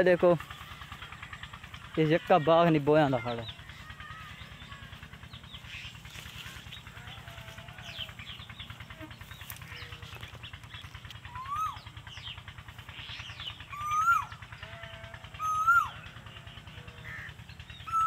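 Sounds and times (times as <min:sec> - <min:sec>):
small birds chirping: 0:00.0 - 0:18.0
koel whistled call: 0:11.3 - 0:11.9, 0:13.7 - 0:14.3, 0:15.4 - 0:16.0.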